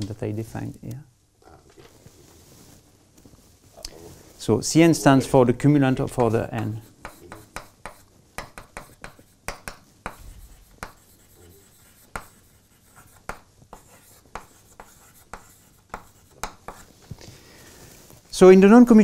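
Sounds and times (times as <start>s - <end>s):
chalk tapping and scratching on board: 6.1s - 17.0s.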